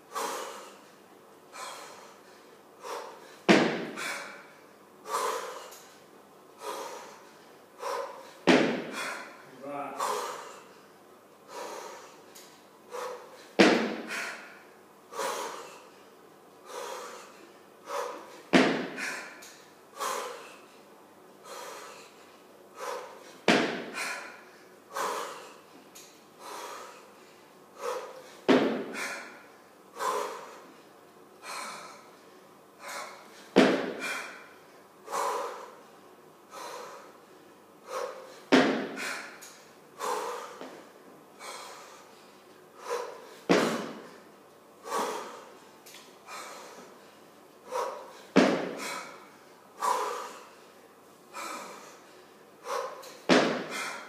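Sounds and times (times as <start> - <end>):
woman breathing hard: 0.0 - 54.0.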